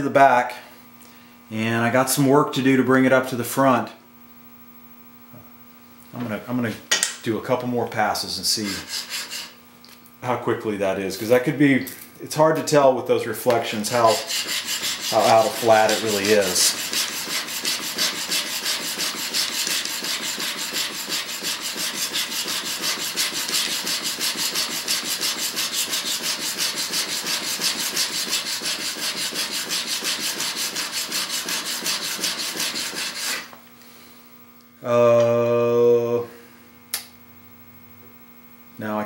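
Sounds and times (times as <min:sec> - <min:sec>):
chisel scraping on sharpening plate: 0:08.6 - 0:09.6, 0:14.0 - 0:33.5.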